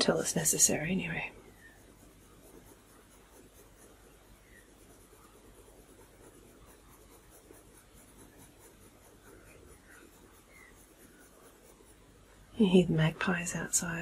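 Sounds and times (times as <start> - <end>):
pencil scratching on paper: 0.0 - 14.0.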